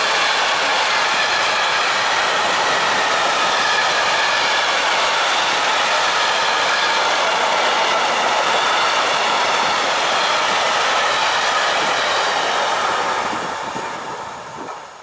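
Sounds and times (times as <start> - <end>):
train wheels rolling on rails: 0.0 - 15.0.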